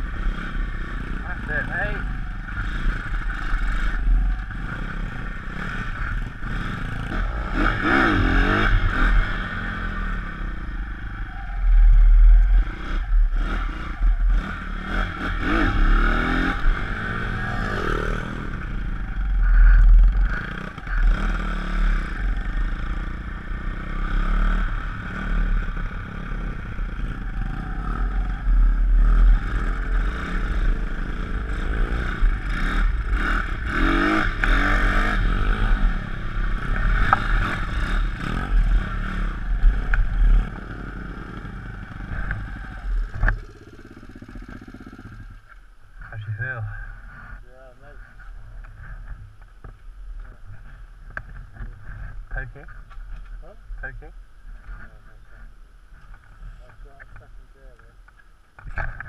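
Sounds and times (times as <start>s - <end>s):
pit bike engine revving: 0.0s - 45.5s.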